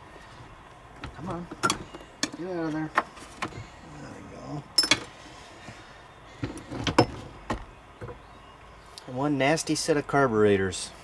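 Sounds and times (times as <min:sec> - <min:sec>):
metal part knocking and scraping: 0:04.8 - 0:05.2.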